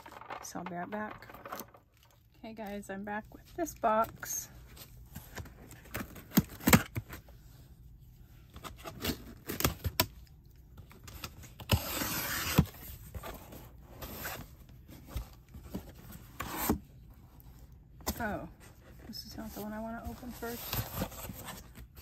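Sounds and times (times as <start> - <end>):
cardboard rasping tear: 11.7 - 12.7.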